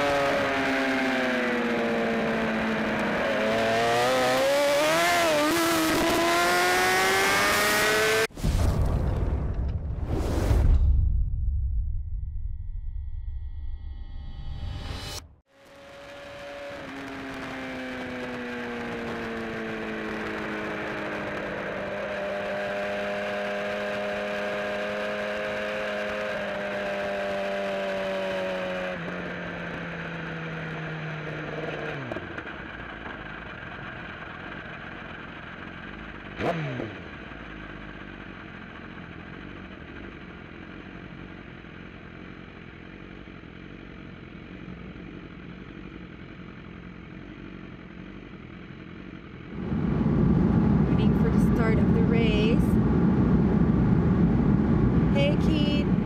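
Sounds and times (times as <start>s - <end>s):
motorcycle engine running: 0.0s - 8.3s, 14.8s - 56.0s
race motorcycles revving: 0.0s - 8.3s, 15.7s - 32.9s, 35.8s - 37.6s, 49.4s - 56.0s.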